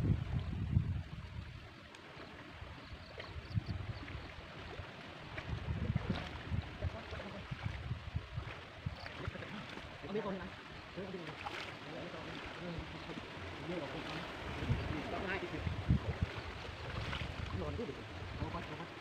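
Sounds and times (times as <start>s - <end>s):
wind rumbling on microphone: 0.0s - 11.2s, 11.9s - 19.0s
water splashing and sloshing: 0.0s - 19.0s
small ticks: 1.8s - 2.2s.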